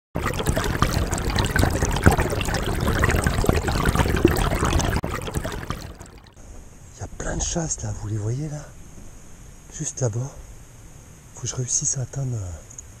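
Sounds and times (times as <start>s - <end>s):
river water trickling and splashing: 0.2s - 6.4s.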